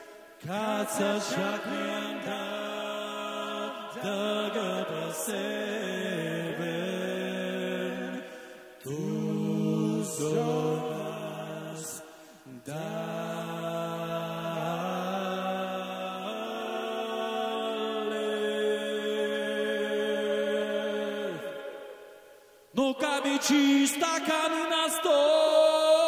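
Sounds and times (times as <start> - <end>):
a cappella group singing: 0.0 - 26.0.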